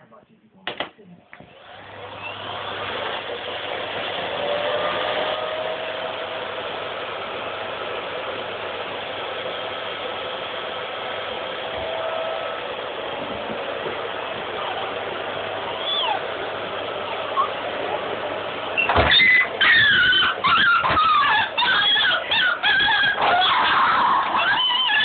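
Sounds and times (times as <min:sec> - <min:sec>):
vacuum cleaner running: 0:01.4 - 0:25.0.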